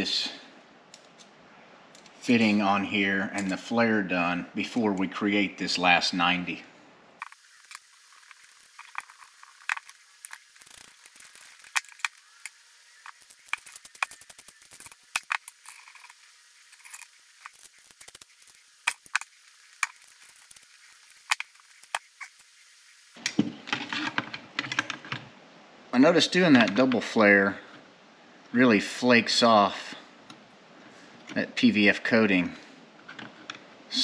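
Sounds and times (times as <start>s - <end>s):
handling noise: 7.2s - 25.3s.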